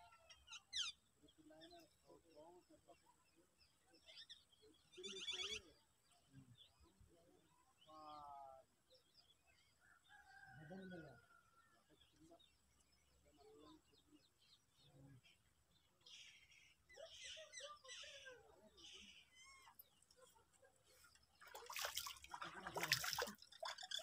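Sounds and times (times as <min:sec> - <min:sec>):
faint bird chirps: 0:00.0 - 0:21.9
water splashing: 0:21.4 - 0:24.0.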